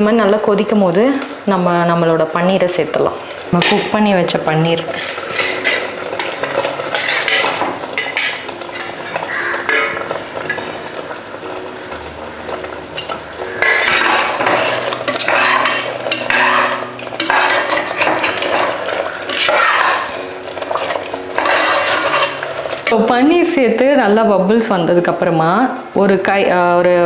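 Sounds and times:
metal spoon scraping pot: 3.6 - 4.0, 4.8 - 10.6, 13.0 - 23.1
metal plate clinking on pot rim: 4.9 - 10.6, 13.0 - 23.0
food sliding into boiling gravy: 4.9 - 22.9.

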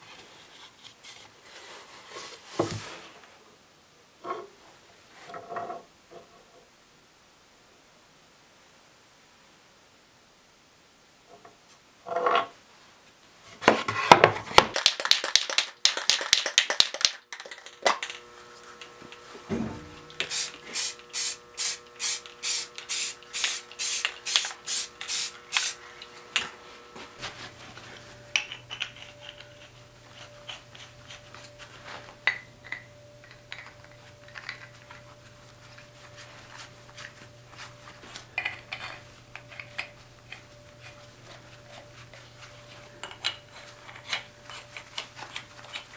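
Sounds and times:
steady low hum: 18.0 - 45.9
spray paint can bursts: 20.2 - 25.8
pipe fittings clinking and scraping: 28.4 - 31.6, 38.4 - 41.0.

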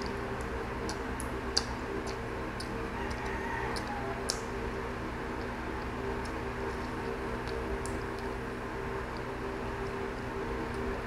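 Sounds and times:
person chewing food: 0.0 - 8.4
low background hum: 0.0 - 11.0.

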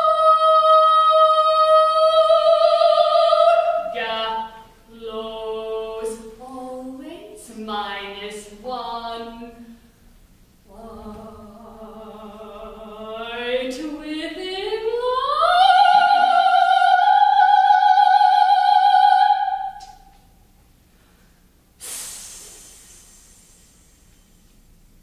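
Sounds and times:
soprano singing operatically: 0.0 - 9.6, 10.7 - 20.0.

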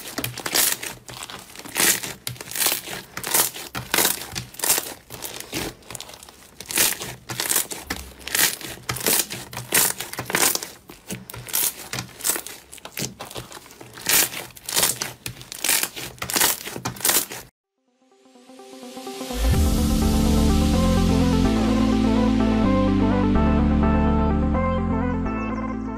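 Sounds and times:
slime crinkling and tearing: 0.0 - 17.5.

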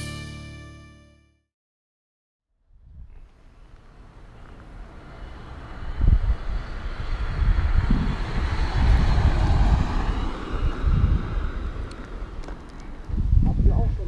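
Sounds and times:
wind buffeting microphone: 2.7 - 14.0
motor vehicle running: 3.3 - 13.2.

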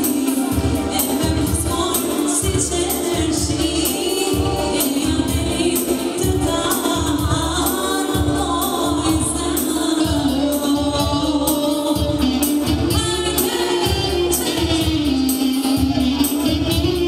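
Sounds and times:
drum beat and bass: 0.0 - 17.0
person singing: 0.0 - 17.0.

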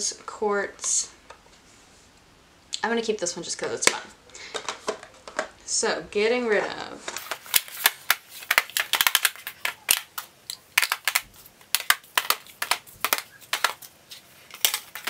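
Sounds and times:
plastic cases clacking on floor: 3.8 - 5.6, 7.1 - 15.0.

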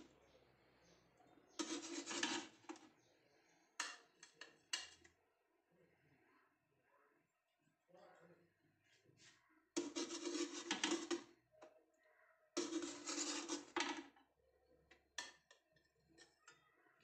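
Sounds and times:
metal spatula scraping metal tray: 1.6 - 2.9, 9.8 - 11.3, 12.6 - 14.2.

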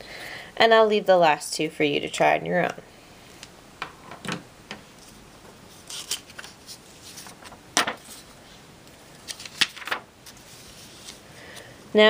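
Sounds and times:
paper rustling: 5.0 - 8.4, 9.1 - 11.7.

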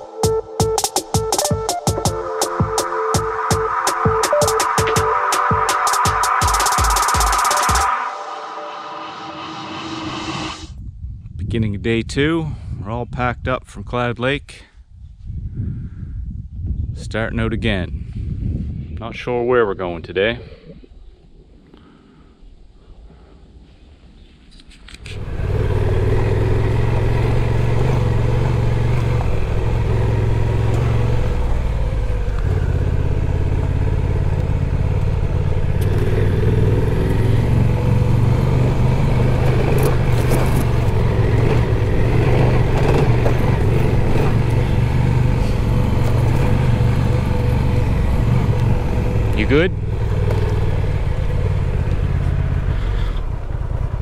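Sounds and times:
wind noise: 9.6 - 21.8
motorcycle engine running: 25.1 - 54.0
tyre noise: 38.9 - 47.0.

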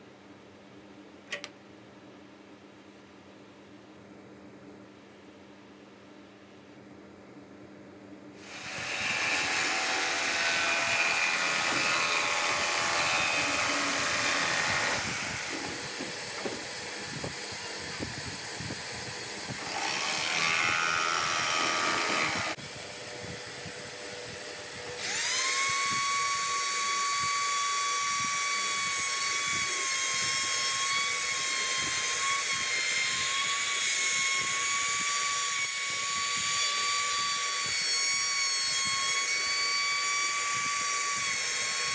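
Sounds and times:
jigsaw cutting plywood: 8.4 - 16.8, 19.5 - 22.6, 25.0 - 25.9
trim router whining: 8.4 - 22.7, 24.6 - 33.6.

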